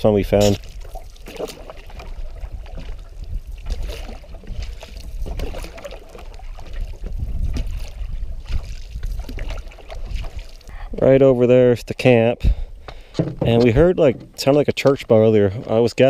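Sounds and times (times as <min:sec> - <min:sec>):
paddles splashing through water: 0:00.0 - 0:11.2
water trickling along canoe hull: 0:00.0 - 0:16.0.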